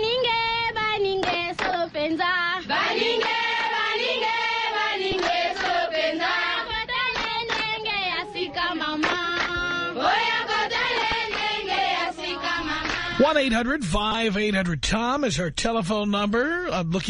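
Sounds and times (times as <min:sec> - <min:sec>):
high voices chanting: 0:02.6 - 0:13.3.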